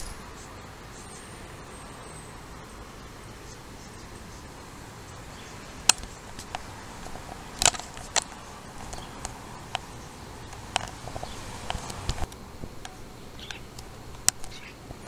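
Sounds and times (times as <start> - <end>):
starling clicking: 5.1 - 15.0.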